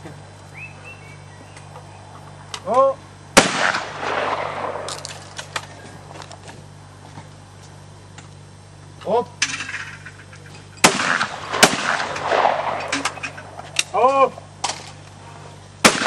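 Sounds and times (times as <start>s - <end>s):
shotgun blast: 3.4s - 5.4s, 10.8s - 13.6s
shot echo: 3.4s - 5.8s, 10.8s - 14.0s.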